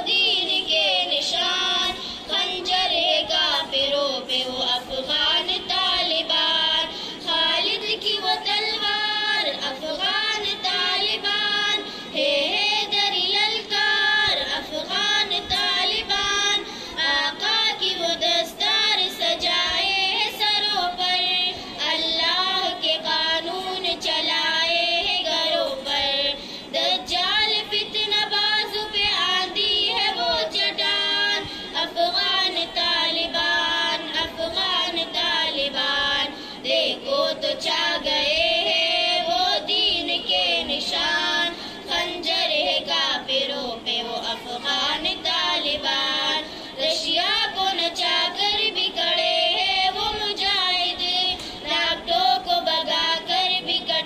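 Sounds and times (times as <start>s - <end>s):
girl singing into a microphone: 0.0s - 54.0s.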